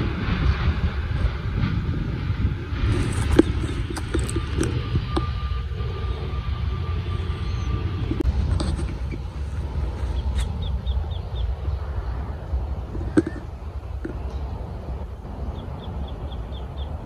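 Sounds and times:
wind buffeting microphone: 0.0 - 17.0
small bird chirping: 7.1 - 8.2, 10.0 - 11.9, 15.5 - 17.0.

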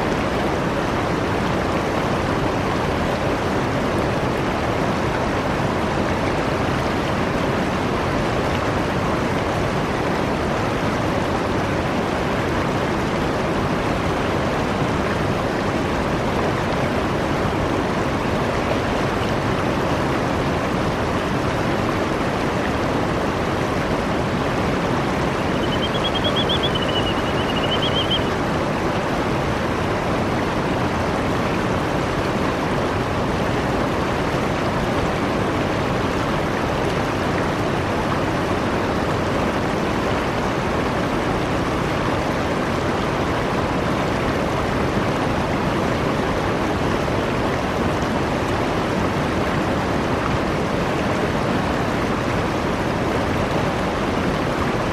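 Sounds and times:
river water rushing over rocks: 0.0 - 54.9
high warbling bird call: 25.3 - 28.3.

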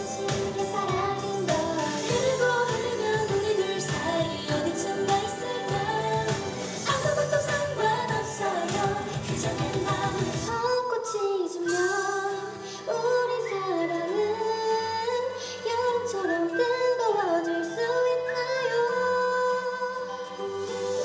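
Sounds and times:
soft backing track: 0.0 - 21.0
women singing slow melody: 0.0 - 21.0
drum beat: 0.3 - 10.5.

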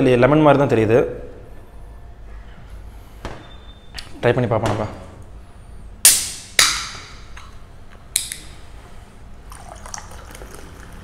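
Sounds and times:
cola pouring and fizzing: 9.4 - 11.0.

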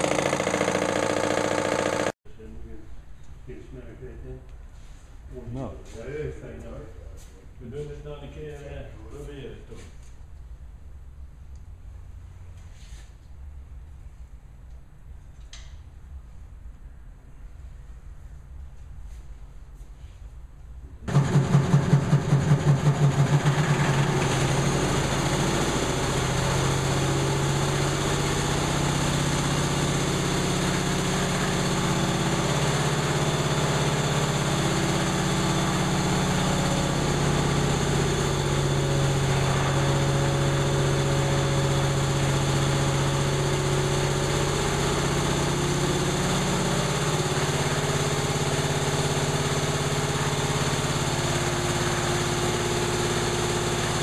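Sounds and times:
diesel compressor running: 0.0 - 3.1, 20.9 - 54.0.

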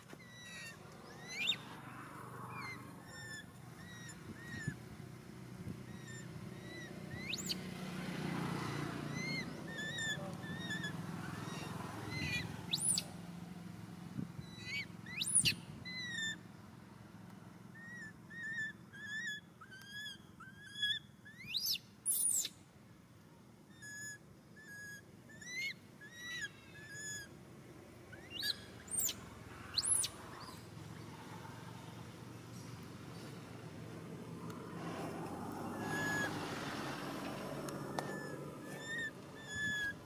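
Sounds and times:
animal chirping notes: 0.2 - 1.7, 2.5 - 4.8, 5.9 - 7.6, 8.7 - 13.1, 14.4 - 16.4, 23.7 - 27.3, 28.1 - 30.6, 38.1 - 40.0.

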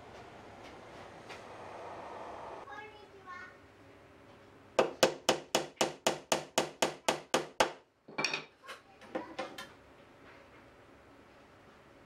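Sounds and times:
hammer striking wood: 4.8 - 7.8.

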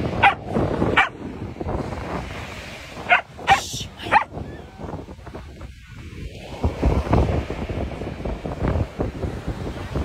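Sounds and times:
surf: 0.0 - 10.0
wind: 0.0 - 10.0
dog barking: 0.2 - 1.2, 3.1 - 4.3.

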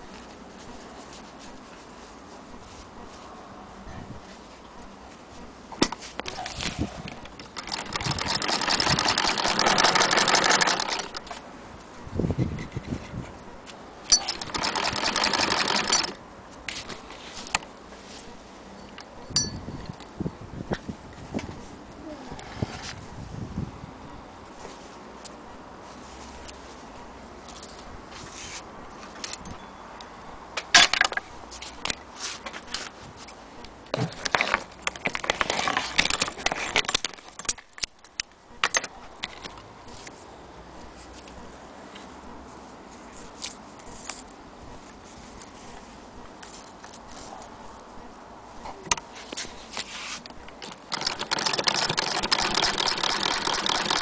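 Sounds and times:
sewing machine clatter: 7.3 - 11.3, 14.1 - 16.2, 50.6 - 54.0
sewing machine clicks: 7.3 - 11.3, 14.1 - 16.2, 50.6 - 54.0
objects clicking and rattling: 34.0 - 39.6.

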